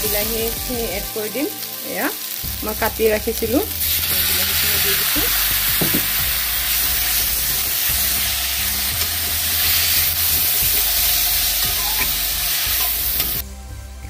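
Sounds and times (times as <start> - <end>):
vegetables sizzling in hot oil: 0.0 - 13.4
metal ladle scraping wok: 3.8 - 13.4.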